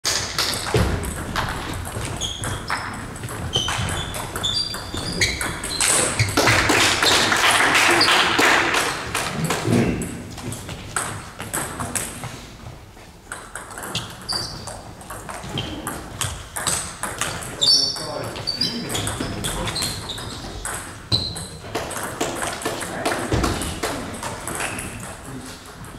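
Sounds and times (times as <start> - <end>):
table tennis balls clicking: 0.1 - 12.3, 13.3 - 18.1, 18.8 - 25.9
shoes squeaking on gym floor: 0.2 - 8.3, 12.1 - 21.7.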